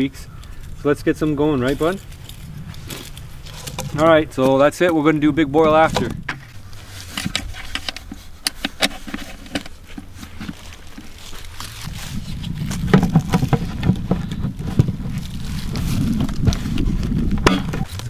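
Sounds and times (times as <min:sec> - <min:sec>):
low rumble of handling noise: 0:00.0 - 0:18.0
plastic bucket clicks and knocks: 0:12.8 - 0:14.9.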